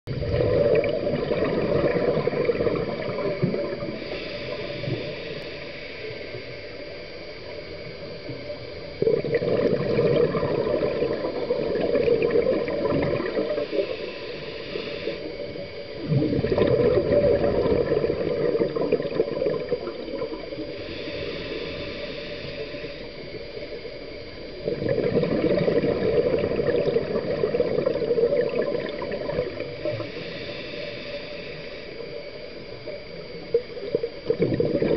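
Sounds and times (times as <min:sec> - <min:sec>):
gurgling rush of exhaled bubbles: 0:00.1 - 0:04.0, 0:09.0 - 0:13.9, 0:16.0 - 0:20.7, 0:24.6 - 0:30.1, 0:33.5 - 0:34.9
regulator inhale hiss: 0:01.5 - 0:24.8, 0:25.4 - 0:34.4.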